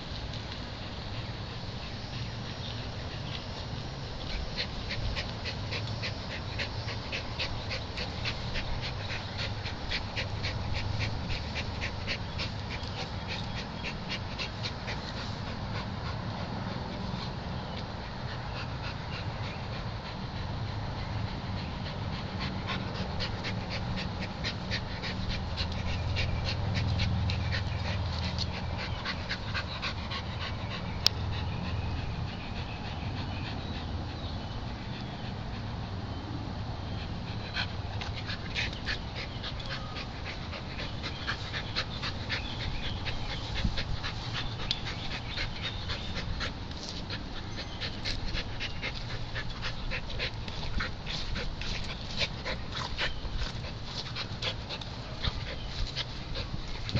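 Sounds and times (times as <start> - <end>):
dog panting: 0.8 - 36.3, 36.9 - 56.9.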